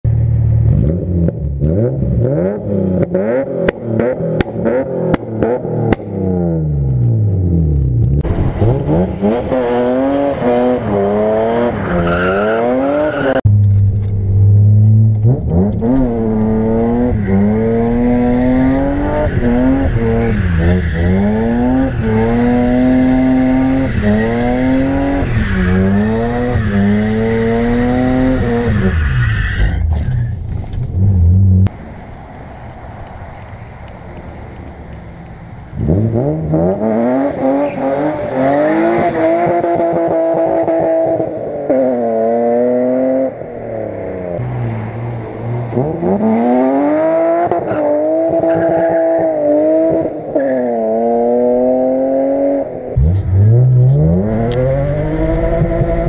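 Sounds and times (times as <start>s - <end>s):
car engine revving hard: 8.3s - 13.4s, 14.6s - 28.9s, 45.7s - 56.0s.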